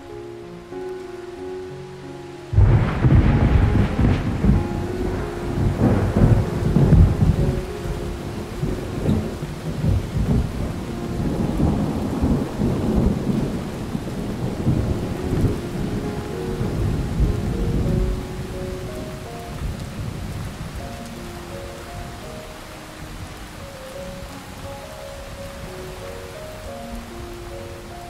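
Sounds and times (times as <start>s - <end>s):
held musical tones: 0.0s - 13.5s
steady rain: 0.0s - 28.0s
low rolling thunder: 2.5s - 28.0s.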